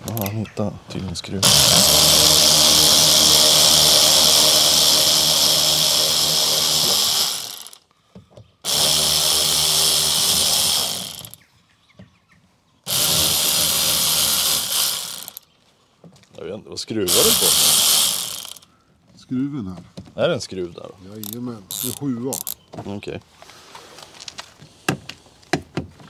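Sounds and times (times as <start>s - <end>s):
electric drill-driver running: 1.4s - 7.8s, 8.7s - 11.4s, 12.9s - 15.4s, 17.1s - 18.6s, 21.2s - 22.6s.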